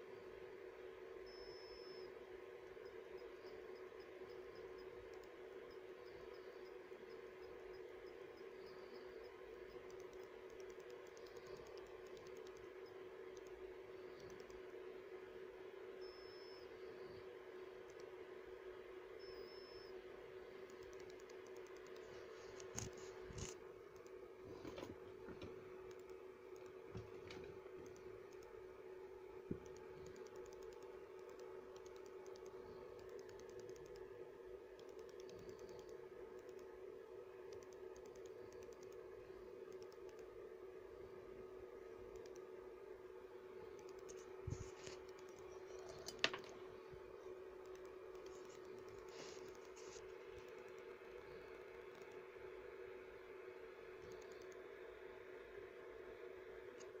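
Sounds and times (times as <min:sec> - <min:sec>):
steady low hum: 0:00.0 - 0:57.0
faint clicks and taps: 0:09.7 - 0:14.6, 0:20.6 - 0:28.6, 0:29.5 - 0:34.1, 0:43.7 - 0:47.0, 0:47.6 - 0:52.2.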